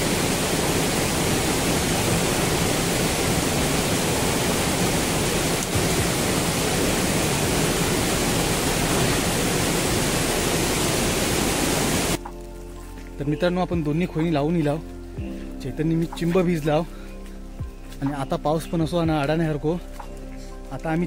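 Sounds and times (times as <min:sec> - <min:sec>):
stream rushing: 0:00.0 - 0:12.2
heavy rain: 0:00.0 - 0:12.6.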